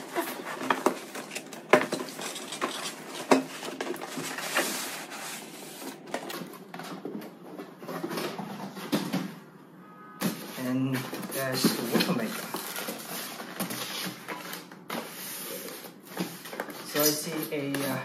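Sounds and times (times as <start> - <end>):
cardboard scraping on foam: 2.1 - 6.1.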